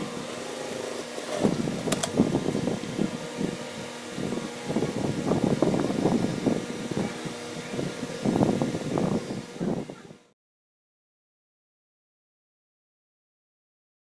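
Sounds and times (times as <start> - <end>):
sharp click: 1.9 - 2.2.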